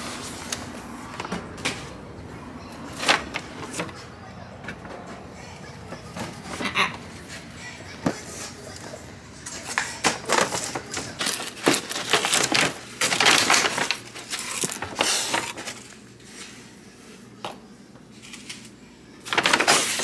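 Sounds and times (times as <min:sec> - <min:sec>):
paper bag rustling and crinkling: 0:02.9 - 0:04.0, 0:09.4 - 0:16.7, 0:19.2 - 0:20.0.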